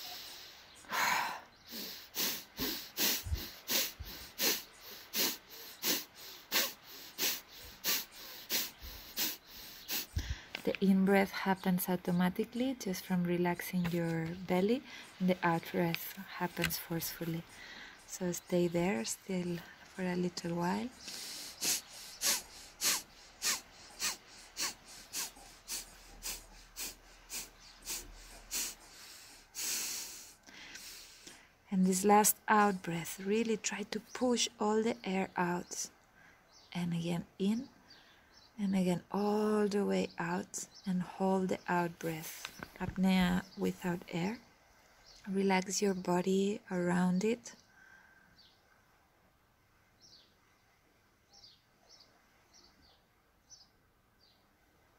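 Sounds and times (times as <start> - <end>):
woman exhaling forcefully through nose: 0.0 - 10.4, 21.0 - 31.3.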